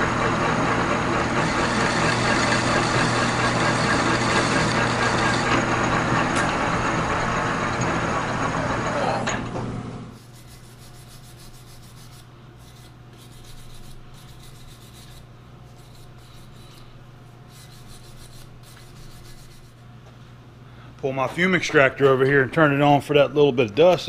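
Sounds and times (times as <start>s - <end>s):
lathe running: 0.0s - 10.1s
wire brush scrubbing metal: 10.2s - 19.8s.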